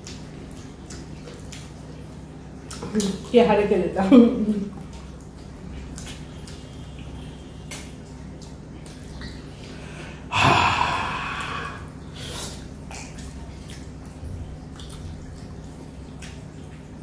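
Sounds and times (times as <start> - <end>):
wet mouth eating noises: 0.0 - 3.4, 4.7 - 17.0
loud noisy breath: 9.8 - 12.6.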